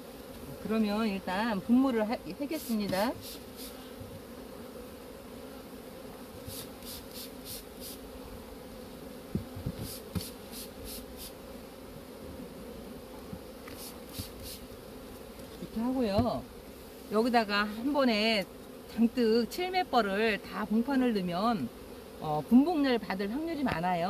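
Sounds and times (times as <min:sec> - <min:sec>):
honeybees humming: 0:00.0 - 0:24.0
spray bottle squirts: 0:03.2 - 0:03.8, 0:06.4 - 0:08.0, 0:09.8 - 0:11.4, 0:13.7 - 0:14.6.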